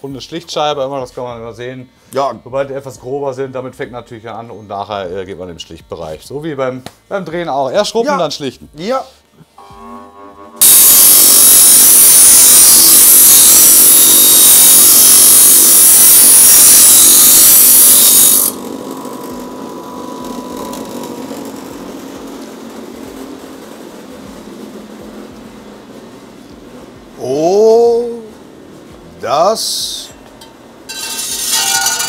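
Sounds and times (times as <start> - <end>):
bench grinder grinding metal: 10.6 - 25.7, 30.9 - 32.0
grinder wheel spinning: 10.6 - 26.6, 30.9 - 32.0.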